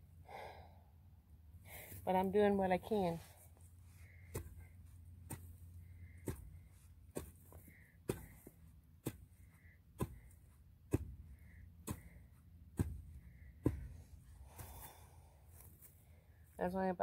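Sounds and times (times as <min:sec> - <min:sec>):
hoe chopping into soil: 0:04.3 - 0:14.9.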